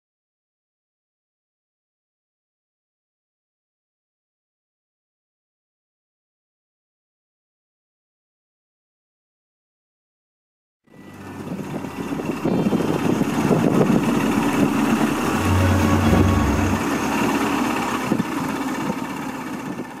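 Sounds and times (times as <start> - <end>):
motorboat engine running: 11.0 - 20.0
wind and water noise: 11.2 - 15.3.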